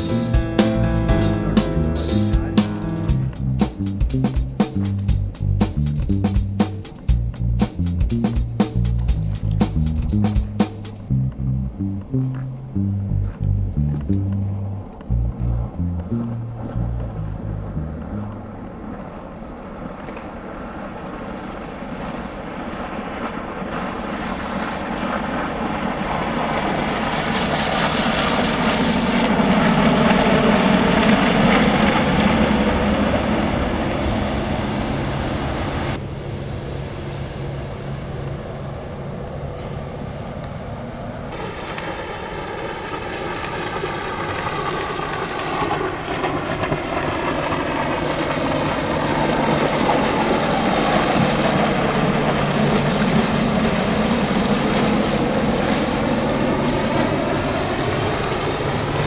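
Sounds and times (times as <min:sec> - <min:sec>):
boat engine passing by: 0:11.2 - 0:20.0, 0:20.7 - 0:42.6, 0:43.3 - 0:59.0
rushing water wash: 0:18.7 - 0:36.0, 0:46.1 - 0:59.0.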